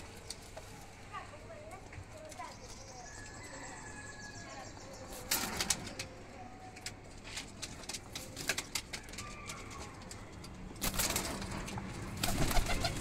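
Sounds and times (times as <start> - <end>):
wings flapping: 10.8 - 13.0
pigeons cooing: 12.2 - 13.0.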